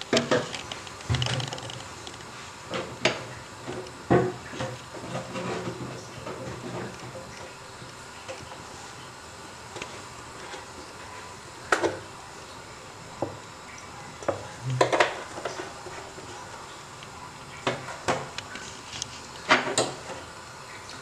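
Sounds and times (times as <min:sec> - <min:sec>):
pots and pans clattering: 0:00.0 - 0:02.0, 0:02.7 - 0:07.6, 0:14.2 - 0:16.6, 0:17.6 - 0:18.4, 0:19.4 - 0:20.3.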